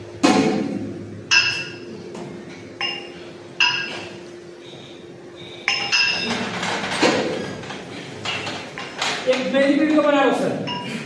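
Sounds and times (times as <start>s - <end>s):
steady low hum: 0.0s - 11.0s
metal weights clinking: 1.3s - 1.9s, 2.8s - 4.2s, 5.6s - 9.5s, 10.7s - 10.9s.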